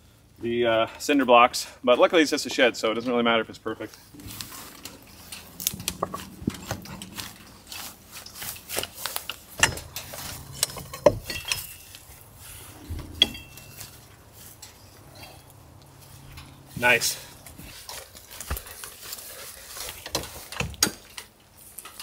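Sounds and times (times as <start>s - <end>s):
concrete blocks knocking and scraping: 4.2s - 12.2s, 12.8s - 14.1s
metallic ring: 9.6s - 15.6s.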